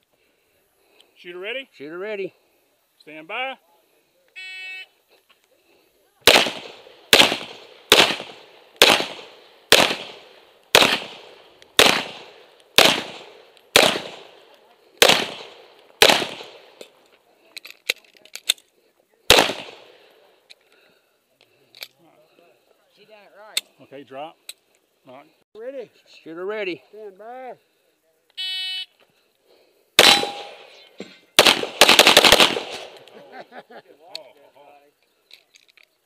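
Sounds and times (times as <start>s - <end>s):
pistol shots with echo: 6.2s - 16.9s, 19.3s - 20.1s, 30.0s - 30.8s, 31.4s - 33.1s.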